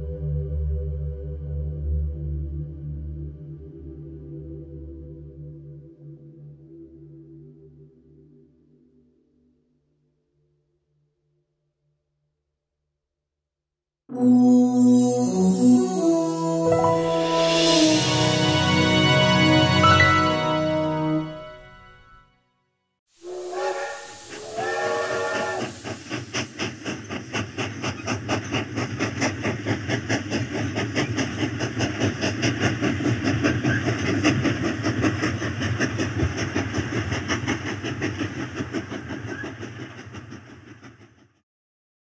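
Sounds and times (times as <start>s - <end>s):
steam locomotive chuffing: 16.0s - 20.8s, 23.2s - 41.4s
steam locomotive whistle blasts: 23.2s - 25.9s
hiss of steam: 23.2s - 38.4s.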